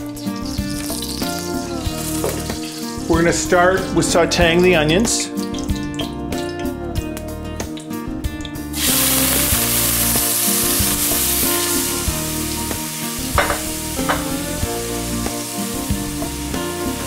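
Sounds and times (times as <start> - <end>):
onions sizzling in hot oil: 0.0 - 3.5, 8.7 - 17.0.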